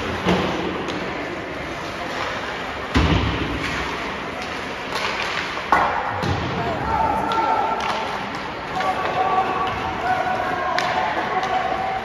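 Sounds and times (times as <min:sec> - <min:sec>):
arena noise: 0:00.0 - 0:12.0
puck thud against rink boards: 0:02.1 - 0:06.5.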